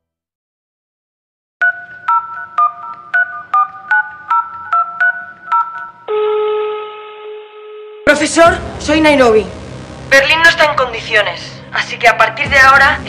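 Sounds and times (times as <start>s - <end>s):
touch-tone keypad beeps: 1.6s - 6.1s
steady telephone line tone: 1.6s - 8.2s.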